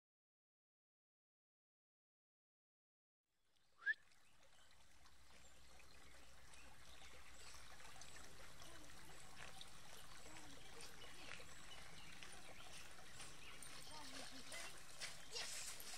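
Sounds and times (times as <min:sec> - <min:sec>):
brook water trickling: 0:03.4 - 0:15.9.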